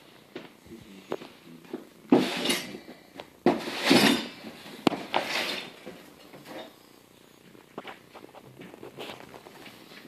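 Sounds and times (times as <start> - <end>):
metal parts clattering and scraping: 3.6 - 4.4.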